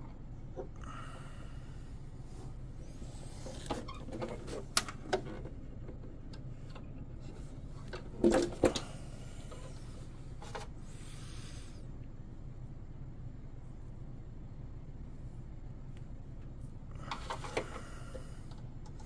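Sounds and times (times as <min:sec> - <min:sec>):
steady low hum: 0:00.0 - 0:19.0
knocks and clicks handling hull: 0:03.5 - 0:07.0, 0:07.8 - 0:08.9.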